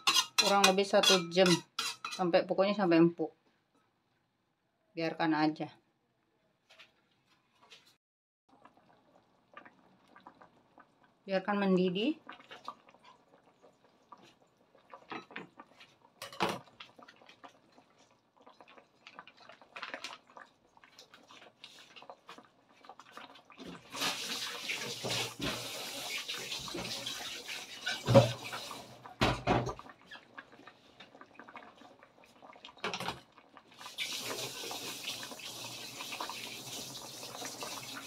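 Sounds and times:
broth simmering and bubbling: 0:08.5 - 0:38.0.

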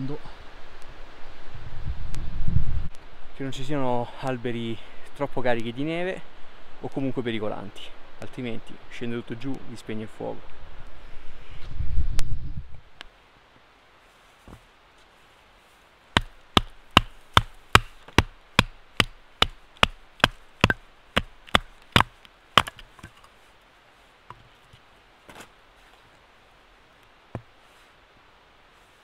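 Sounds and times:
wooden stick knocking knife spine: 0:16.2 - 0:23.2.

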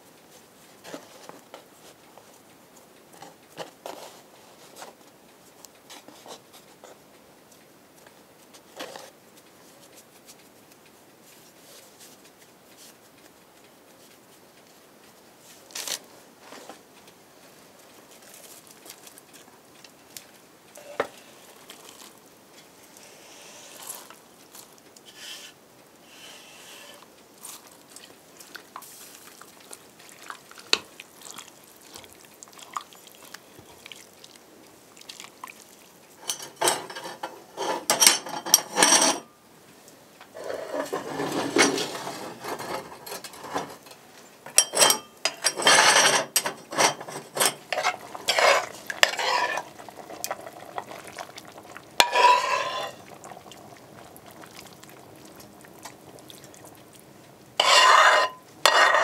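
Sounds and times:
ladle clinking: 0:36.2 - 0:39.3, 0:40.6 - 0:56.7, 0:57.6 - 0:59.0
metal ladle stirring in pot: 0:44.5 - 0:56.6, 0:57.6 - 0:59.0.

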